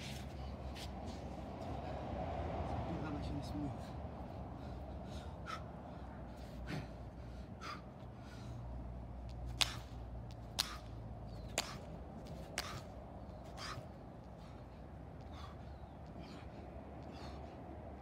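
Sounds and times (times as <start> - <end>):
man breathing hard: 3.8 - 18.0.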